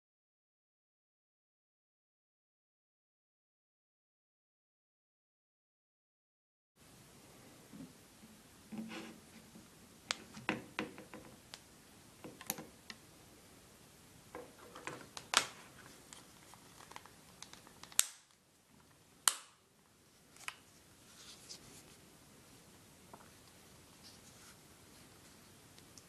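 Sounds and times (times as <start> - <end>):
sharp plastic snaps: 14.8 - 16.2, 16.8 - 18.4, 19.2 - 19.6.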